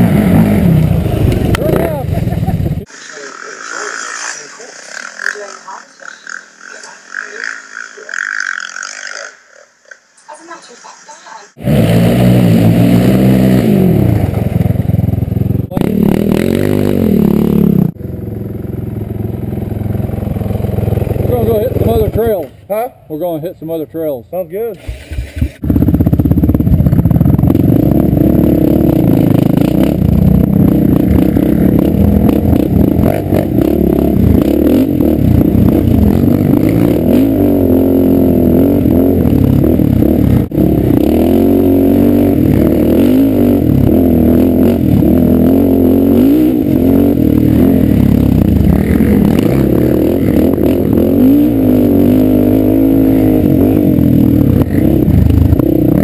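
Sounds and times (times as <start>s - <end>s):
quad engine revving: 0.0s - 5.5s, 11.6s - 22.5s, 24.7s - 56.0s.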